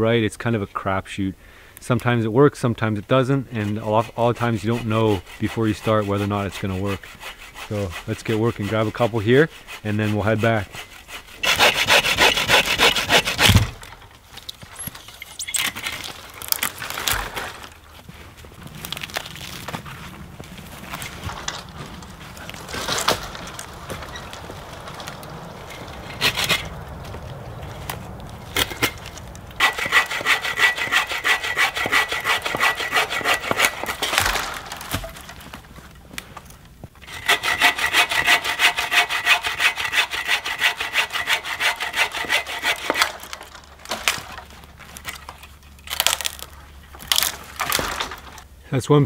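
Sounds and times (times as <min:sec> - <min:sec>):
bow saw cutting wood: 0:03.4 - 0:13.9, 0:19.0 - 0:35.4, 0:37.0 - 0:45.3
rustling: 0:03.5 - 0:40.1, 0:40.9 - 0:48.5
wood cracking: 0:09.6 - 0:48.5.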